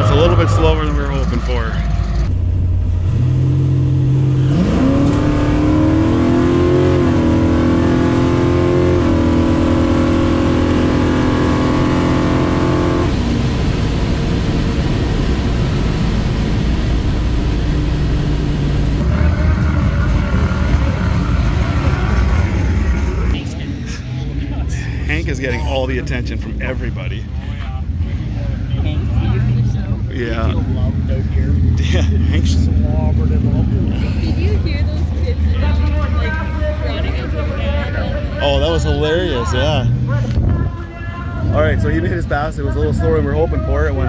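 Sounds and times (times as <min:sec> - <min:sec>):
drag car engine revving: 0:00.0 - 0:44.0.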